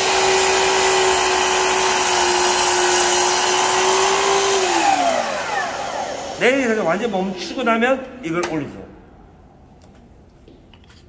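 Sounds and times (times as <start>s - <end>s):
mitre saw motor whine: 0.0s - 7.4s.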